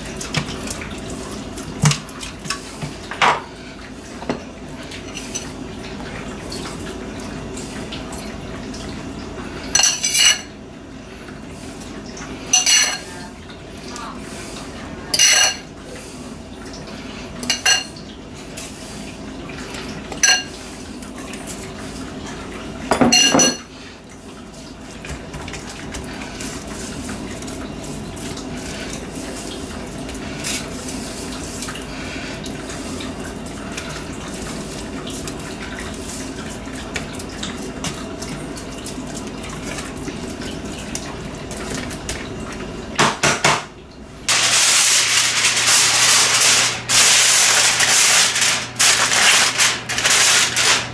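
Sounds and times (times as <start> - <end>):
utensil clinking against dish: 9.7 - 10.5, 12.5 - 13.2, 15.1 - 15.7, 17.4 - 18.0, 20.1 - 20.6, 22.9 - 23.7
aluminum foil crinkling: 44.3 - 50.9.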